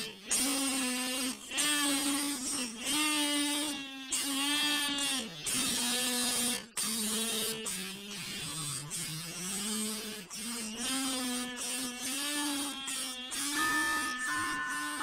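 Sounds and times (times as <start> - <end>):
comb and paper kazoo buzzing: 0.0 - 15.0
steady musical notes: 13.6 - 15.0.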